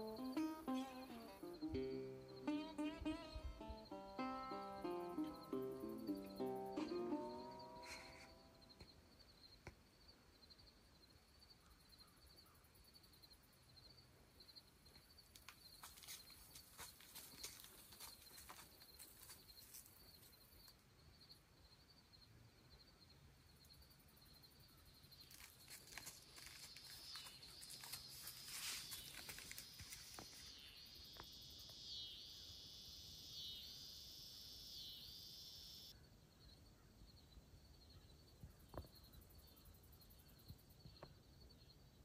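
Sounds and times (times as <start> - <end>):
steady high insect buzz: 0.0 - 8.9, 25.2 - 35.9
soft crackling rustle: 15.1 - 20.8, 25.1 - 30.8.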